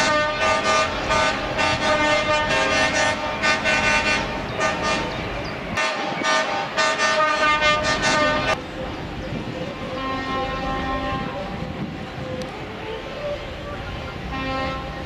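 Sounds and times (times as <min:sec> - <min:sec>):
truck air horn blasts: 0:00.0 - 0:05.1, 0:05.8 - 0:08.6, 0:09.9 - 0:11.5, 0:12.8 - 0:15.0.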